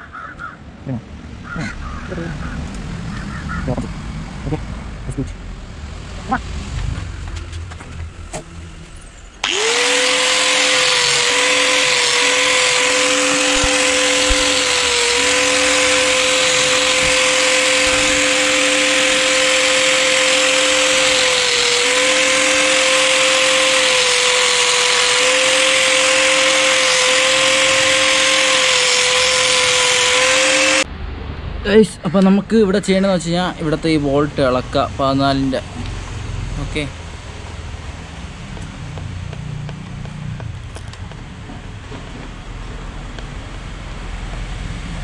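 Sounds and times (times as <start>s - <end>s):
grinder cutting pipe hum: 7.9s - 30.9s
angle grinder whining: 8.5s - 30.9s.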